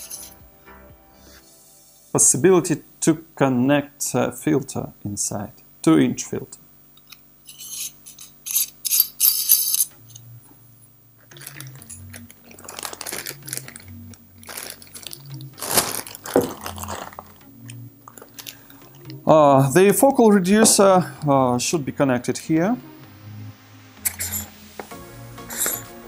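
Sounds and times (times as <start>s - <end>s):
metal rings clinking: 0.0s - 0.4s, 7.4s - 10.3s, 24.0s - 24.5s
quiet background music: 0.0s - 26.0s
plastic bag rustling: 11.2s - 17.4s, 18.0s - 18.9s.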